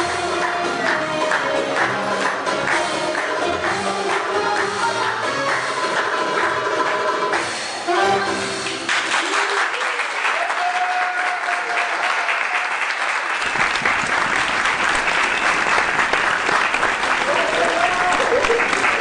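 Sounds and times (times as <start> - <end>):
belly dance music: 0.0 - 9.2
audience clapping: 0.4 - 7.5, 8.6 - 19.0.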